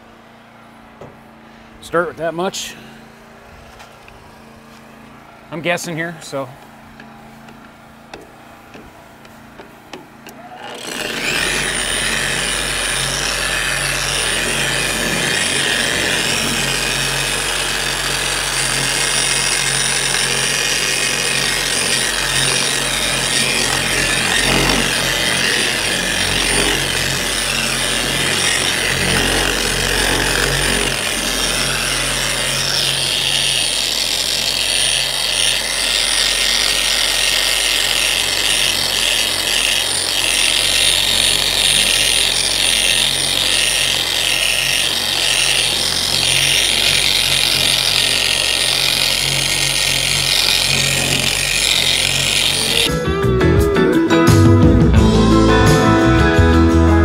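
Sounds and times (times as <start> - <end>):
electric polisher whining: 9.5 - 53.0.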